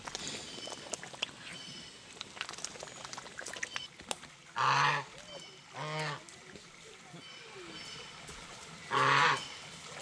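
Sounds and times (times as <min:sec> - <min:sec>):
bill dabbling in water: 0:00.0 - 0:06.2
goose honking: 0:08.9 - 0:09.5.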